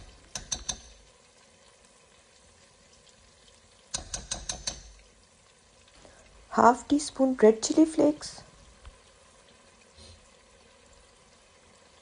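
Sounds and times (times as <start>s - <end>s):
metal spoon tapping pot: 0.0s - 1.1s, 3.9s - 5.0s
sauce simmering: 0.0s - 12.0s.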